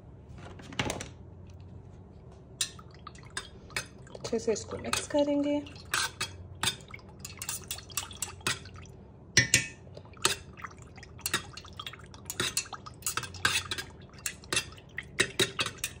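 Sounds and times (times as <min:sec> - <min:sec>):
metal spoon clinking in pitcher: 0:04.8 - 0:08.6, 0:12.3 - 0:16.0.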